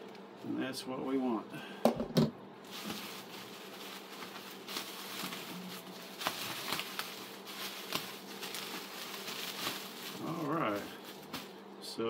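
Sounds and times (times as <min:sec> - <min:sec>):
faint low hum: 0:00.0 - 0:12.0
bubble wrap crinkling: 0:02.6 - 0:11.6.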